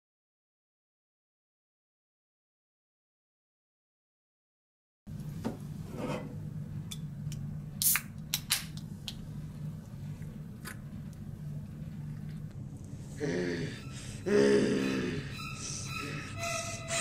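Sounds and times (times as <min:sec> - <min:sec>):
steady low hum: 0:05.1 - 0:17.0
can pull tab cracking open: 0:07.8 - 0:08.8.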